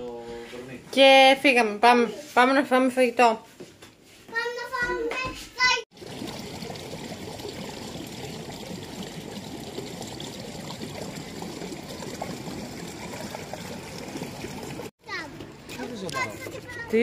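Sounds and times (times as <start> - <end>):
child's voice: 4.3 - 5.9, 15.0 - 15.5, 16.1 - 17.0
running water splashing: 5.9 - 17.0.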